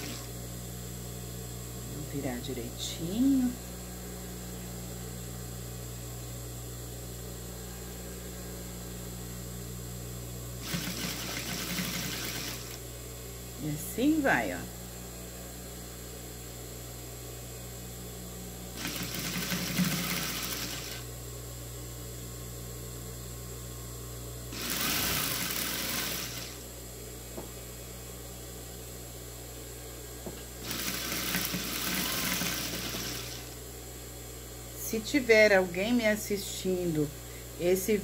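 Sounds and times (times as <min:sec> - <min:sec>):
sewing machine stitching: 0:00.0 - 0:00.3, 0:10.6 - 0:12.8, 0:18.8 - 0:21.0, 0:24.5 - 0:26.6, 0:30.6 - 0:33.5
steady low hum: 0:00.0 - 0:38.0.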